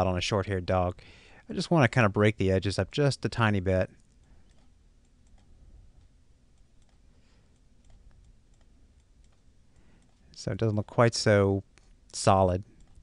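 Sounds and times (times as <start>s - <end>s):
computer mouse clicks: 4.0s - 10.4s, 12.7s - 13.0s.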